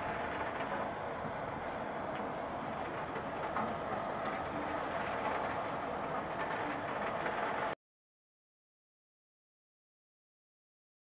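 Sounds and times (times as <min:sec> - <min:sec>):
steady rain falling: 0:00.0 - 0:07.8.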